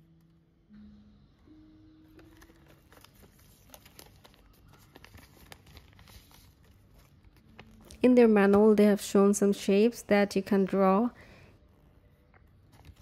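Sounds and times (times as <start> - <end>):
paper sheet unfolding: 2.1 - 8.0
plastic wrapper crinkling: 2.1 - 8.1.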